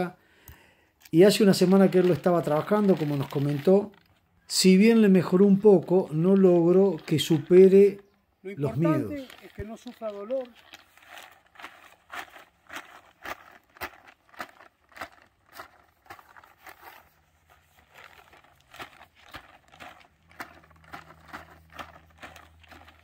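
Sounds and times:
plastic bag crinkling: 1.2 - 23.0.

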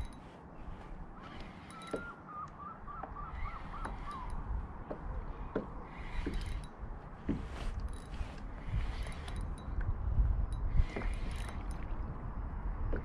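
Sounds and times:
wind: 0.0 - 13.0
wavering bird call: 1.2 - 4.4
light clicks and knocks: 1.2 - 12.2.

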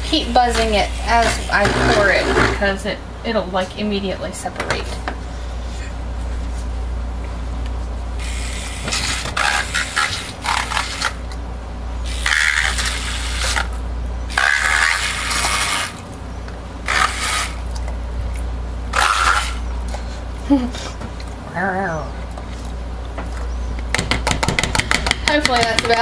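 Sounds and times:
milk frother buzzing in plastic cup: 0.2 - 2.7, 12.1 - 16.0.

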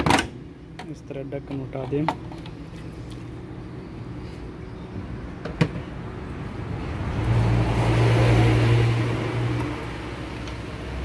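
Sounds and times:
vehicle engine passing: 6.0 - 11.0.

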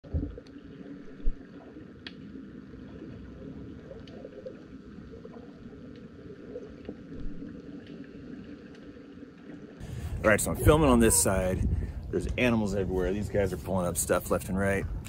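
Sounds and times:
muffled water sloshing: 0.0 - 15.0
faint clicks: 0.4 - 2.4, 3.9 - 9.6.

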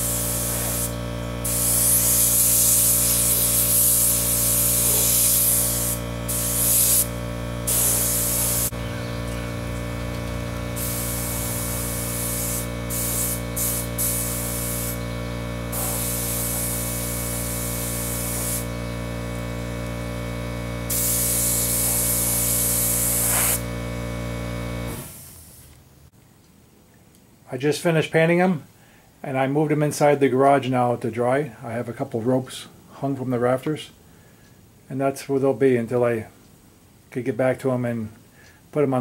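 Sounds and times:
spray gun hissing: 0.0 - 19.8, 20.8 - 23.8
low mechanical hum: 0.0 - 27.5.

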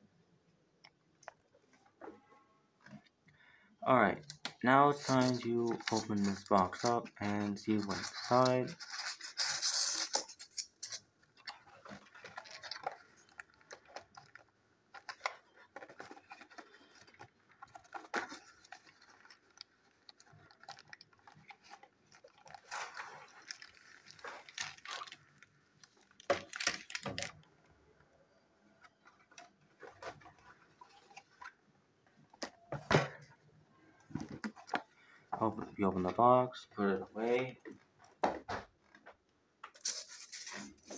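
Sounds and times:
packaging clattering: 5.0 - 27.4.

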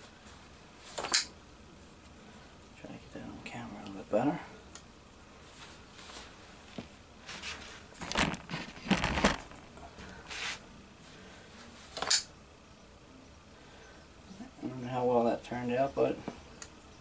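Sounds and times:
cargo pants rustling: 5.4 - 10.7.

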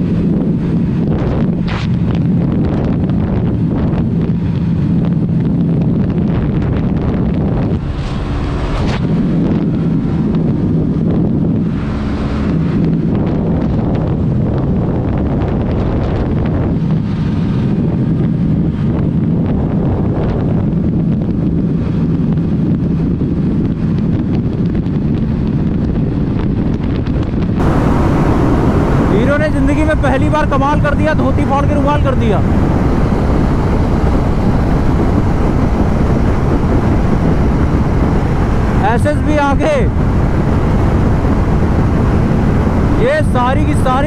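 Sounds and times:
wind buffeting microphone: 0.0 - 44.0
scooter engine droning: 27.6 - 30.1.

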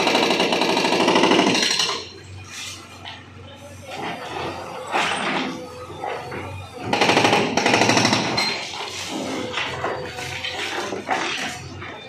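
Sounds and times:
hydraulic breaker hammering masonry: 0.0 - 2.2, 4.9 - 12.0.

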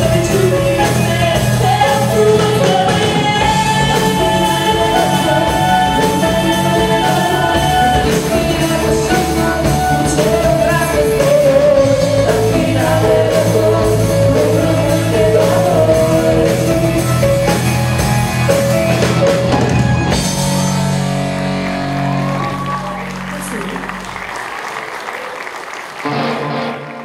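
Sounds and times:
woman singing: 0.0 - 17.0
live rock band playing: 0.0 - 24.9, 25.6 - 27.0.

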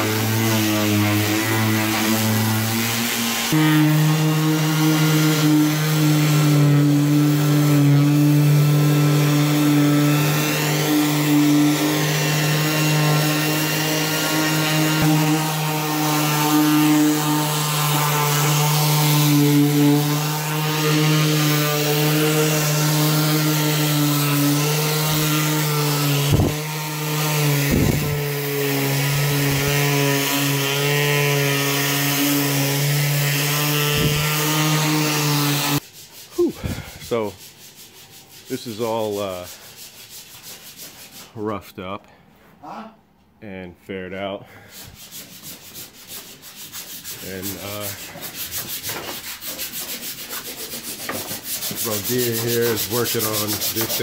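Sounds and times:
orbital sander running: 0.0 - 35.8, 50.2 - 54.0.

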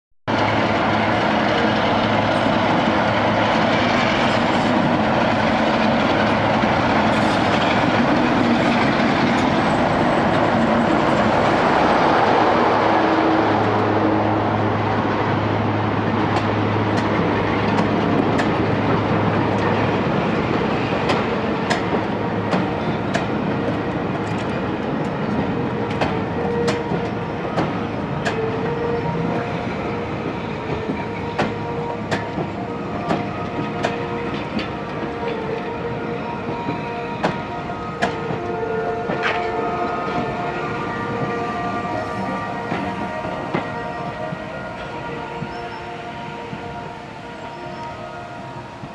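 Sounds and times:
train rumbling: 0.3 - 48.9
wheels clicking over rail joints: 16.3 - 46.8.

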